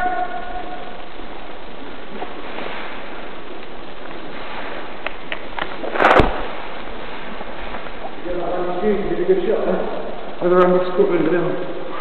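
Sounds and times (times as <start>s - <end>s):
microphone rushing noise: 5.7s - 8.8s.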